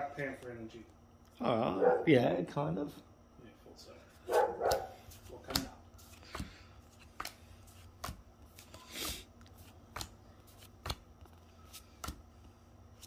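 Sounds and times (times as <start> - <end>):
trading cards snapping: 4.3 - 4.9, 5.5 - 8.8, 9.9 - 11.0.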